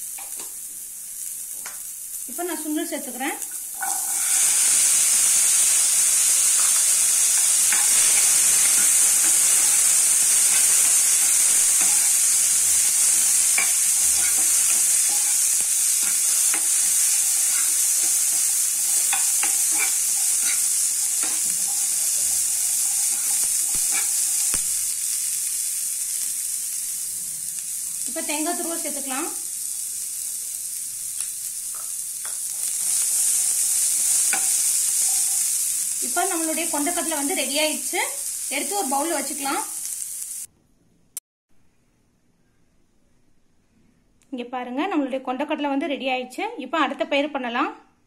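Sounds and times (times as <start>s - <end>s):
chickpeas sizzling in oil: 0.0s - 40.5s
spatula scraping pan: 3.8s - 4.9s, 6.4s - 24.6s, 32.5s - 35.5s.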